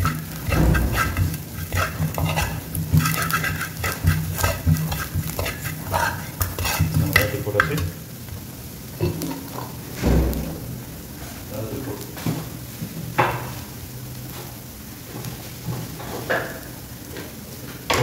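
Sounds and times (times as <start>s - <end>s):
metal spoon scraping frying pan: 0.0s - 7.9s
oil sizzling: 0.0s - 18.0s.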